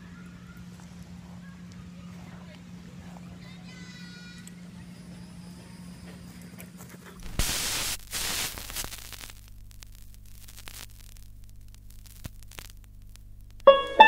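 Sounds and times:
low electrical hum: 0.0 - 14.0
bursts of static hiss: 7.2 - 14.0
crackles and clicks: 7.2 - 14.0.

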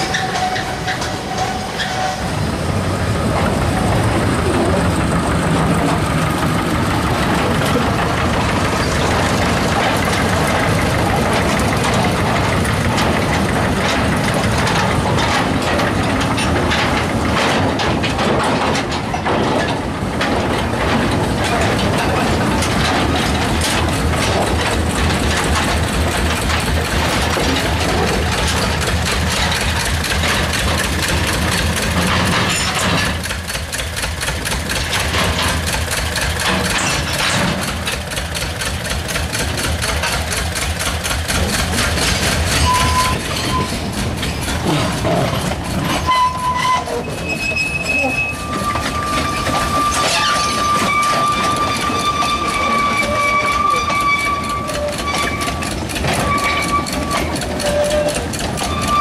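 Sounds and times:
diesel locomotive passing: 0.0 - 59.0
train wagons clattering: 0.0 - 59.0
high squeal: 42.5 - 44.4, 45.9 - 59.0.

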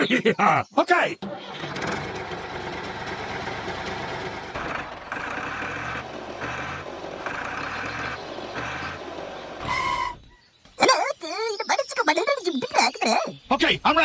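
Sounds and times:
vehicle motor running: 1.2 - 10.4.

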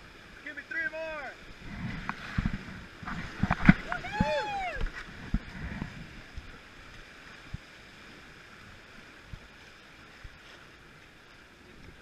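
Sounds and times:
whitewater rapids rushing: 0.2 - 6.8.

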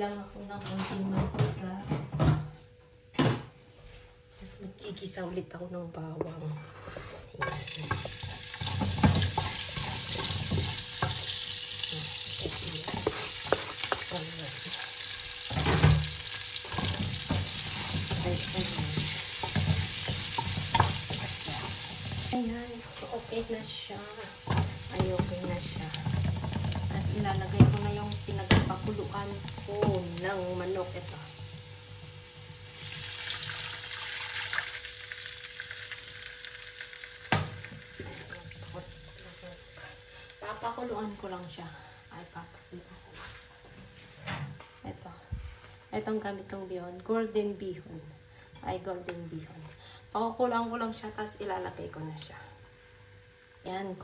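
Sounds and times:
wooden spatula scraping pot: 6.6 - 15.6, 16.2 - 31.6
onion and garlic sizzling in oil: 7.4 - 44.2.

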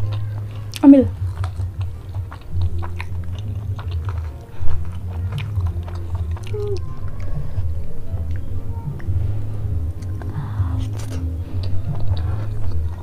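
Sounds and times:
close chewing with mouth clicks: 0.0 - 13.0
steady low hum: 0.0 - 13.0.

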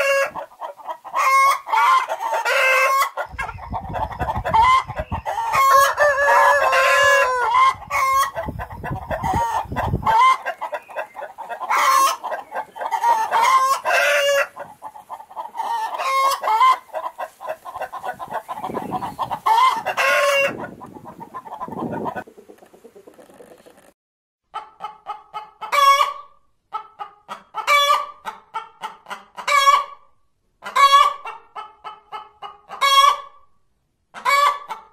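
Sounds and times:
hens clucking and cackling: 0.0 - 33.4, 34.1 - 34.9
rooster crowing: 5.2 - 8.3.

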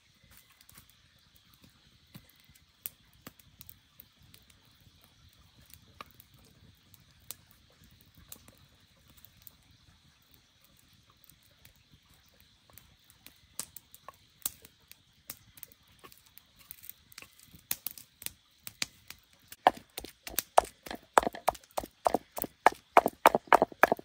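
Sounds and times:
sharp knocks on wood: 19.6 - 24.0.

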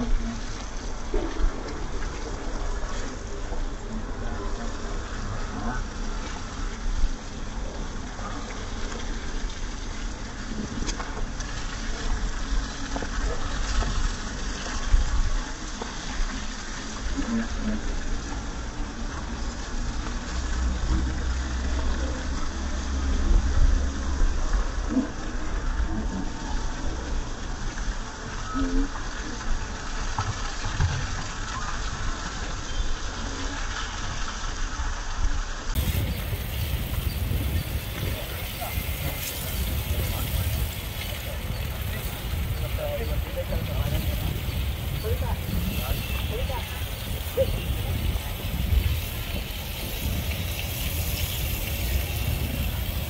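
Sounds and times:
water splashing on wet paving: 0.0 - 53.0
hose water spraying: 35.7 - 53.0.

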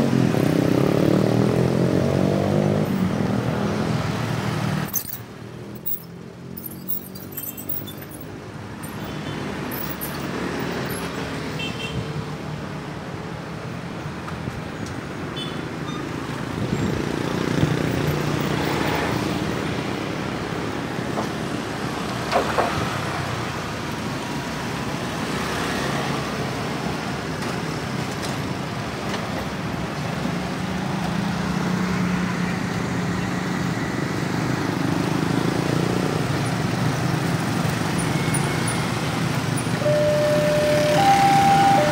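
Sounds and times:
motorcycles and scooters passing: 0.0 - 4.9, 16.6 - 19.5, 31.2 - 41.9.

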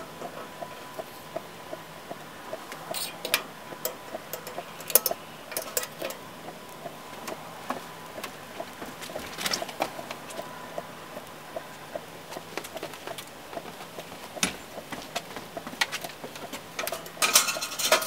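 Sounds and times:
steady light ticking: 0.1 - 17.2.

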